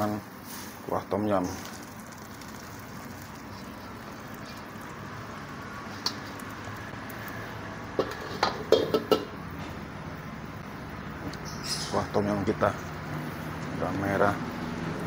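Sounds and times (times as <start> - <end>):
stock pouring through strainer: 1.4 - 7.4
broth bubbling: 1.7 - 9.5
metal pots clanking: 7.9 - 9.7.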